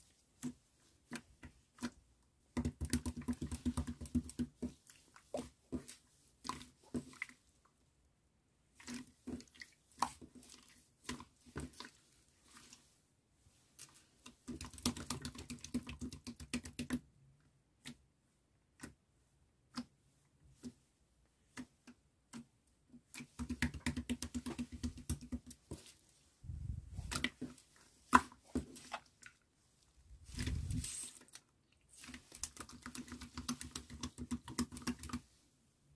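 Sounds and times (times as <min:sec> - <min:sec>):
hands squishing slime: 0:00.1 - 0:07.5, 0:13.6 - 0:17.1, 0:21.4 - 0:26.1, 0:30.2 - 0:35.4.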